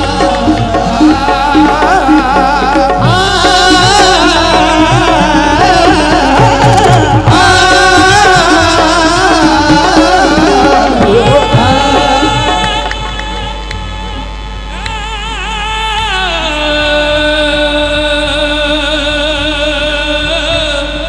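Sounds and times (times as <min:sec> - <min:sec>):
drum beats: 0:00.0 - 0:15.3
accompanying tones: 0:00.0 - 0:18.4
devotional singing: 0:00.0 - 0:21.0.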